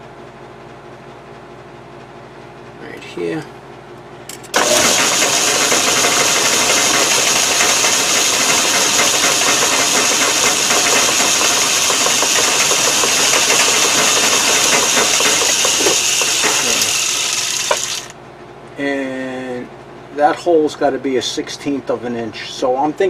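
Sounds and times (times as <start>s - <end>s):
metal lathe running: 4.6s - 18.1s.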